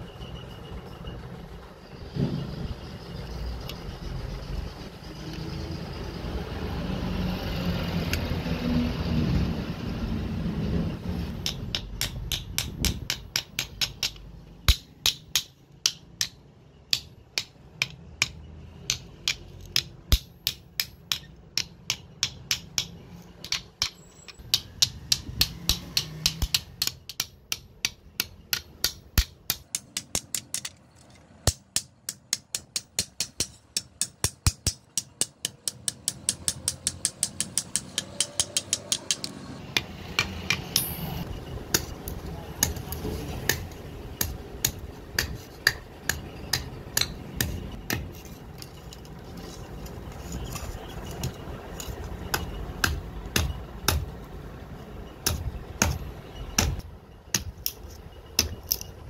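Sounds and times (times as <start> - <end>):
small hammer tapping nails: 11.4 - 30.8, 31.5 - 40.9.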